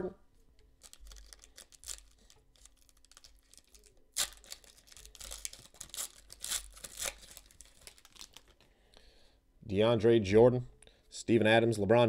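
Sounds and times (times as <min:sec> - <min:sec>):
foil wrapper crinkling: 0:00.7 - 0:08.7
foil pack ripping: 0:00.8 - 0:08.6.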